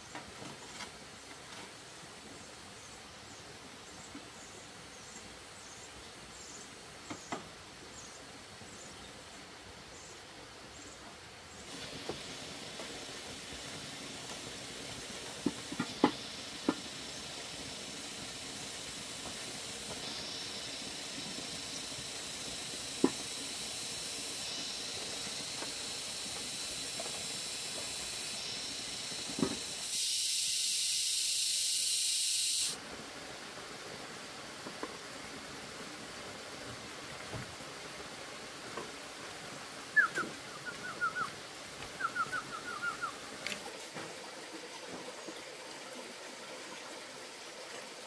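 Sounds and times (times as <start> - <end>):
steady hiss: 0.0 - 48.0
louder bright hiss: 11.6 - 32.9.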